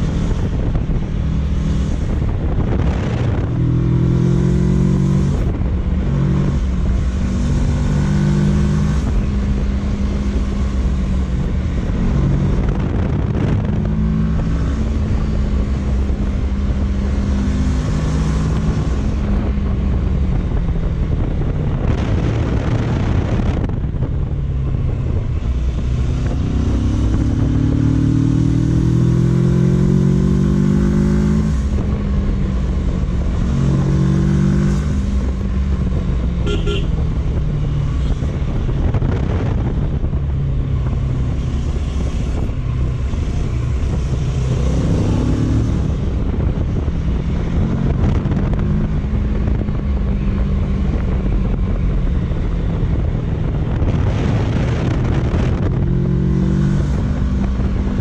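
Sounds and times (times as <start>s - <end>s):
wind rush: 0.0s - 58.0s
motorcycle engine running: 34.7s - 55.9s.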